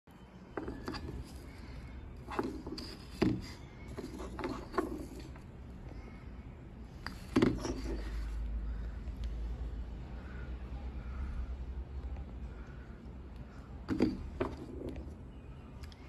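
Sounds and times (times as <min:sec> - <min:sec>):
wood knocking on wooden tabletop: 0:13.9 - 0:14.8.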